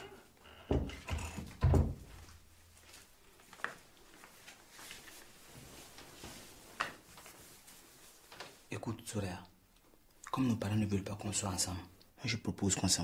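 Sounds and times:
dull thumps of wooden door: 0:00.7 - 0:02.2.

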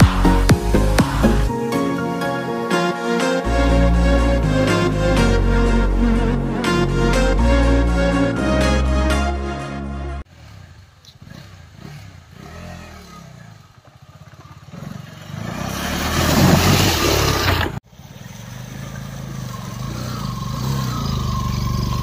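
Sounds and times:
motorcycle engine revving: 0:10.2 - 0:22.0
motorcycle engines running: 0:10.3 - 0:22.0
water splashing loudly: 0:15.3 - 0:17.8.

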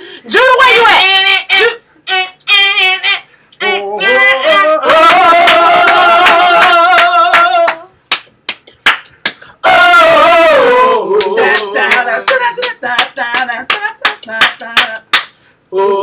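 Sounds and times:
woman singing wordless phrases: 0:00.2 - 0:01.8, 0:11.1 - 0:16.0
hand claps: 0:04.8 - 0:09.5, 0:11.2 - 0:15.4.

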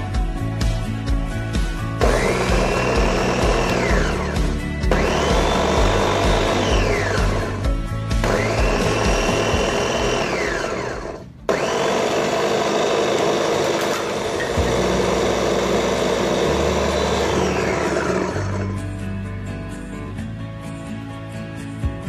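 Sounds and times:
meat grinder motor whining: 0:01.9 - 0:18.9.

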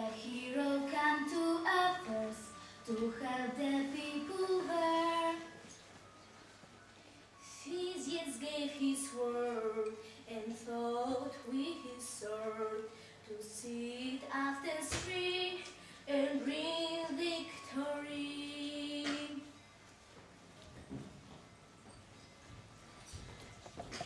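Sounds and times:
girl singing: 0:00.0 - 0:05.7, 0:07.4 - 0:19.6.

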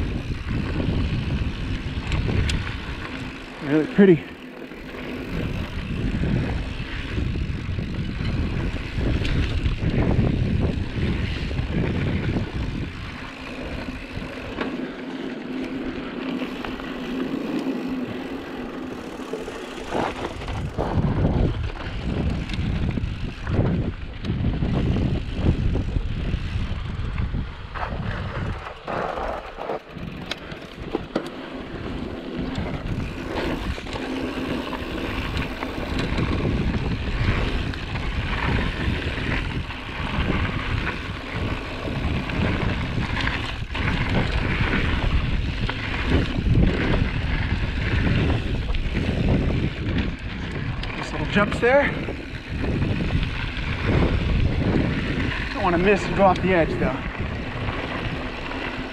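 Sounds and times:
tyres rolling on dirt: 0:00.0 - 0:58.9
wind rushing over microphone: 0:00.0 - 0:58.9
bike knocks and rattles: 0:04.7 - 0:26.6.

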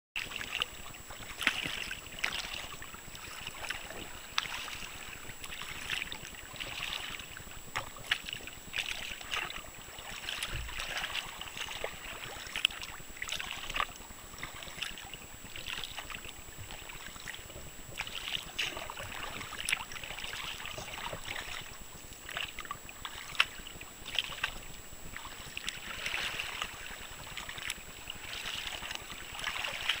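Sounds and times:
water splashing against kayak hull: 0:00.2 - 0:30.0.

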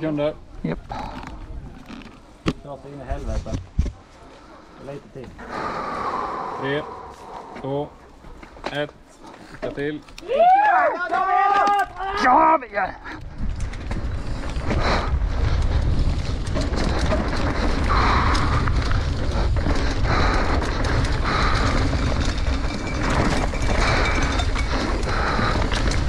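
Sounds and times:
tyre and trail noise: 0:00.0 - 0:26.0
wind rumbling on microphone: 0:13.0 - 0:26.0
bike knocks and rattles: 0:13.2 - 0:26.0.

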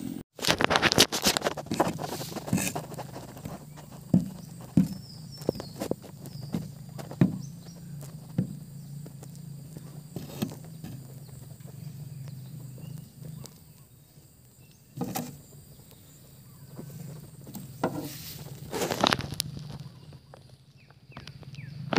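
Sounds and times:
faint outdoor background: 0:00.0 - 0:21.9
knocks on wooden planks: 0:01.2 - 0:11.3, 0:15.0 - 0:15.4, 0:16.7 - 0:18.2
steady low hum: 0:01.6 - 0:18.7.

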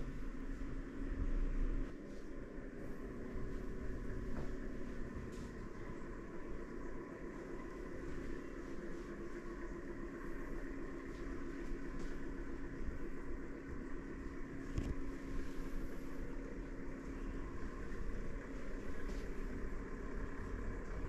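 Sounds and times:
low rumble: 0:00.0 - 0:21.0
steady mechanical hum: 0:00.0 - 0:21.0.

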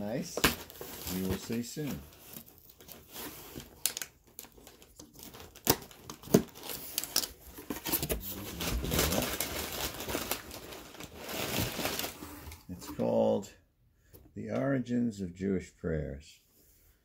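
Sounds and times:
rustling of contents: 0:00.0 - 0:13.2
cardboard tearing and scraping: 0:00.4 - 0:12.2.

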